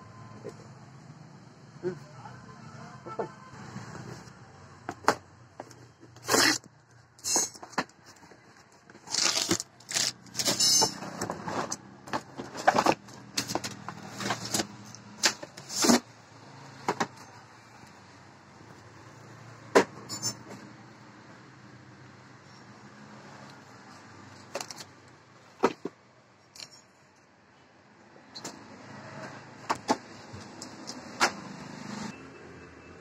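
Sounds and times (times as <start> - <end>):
rustling of cardboard and packaging: 5.0 - 16.1.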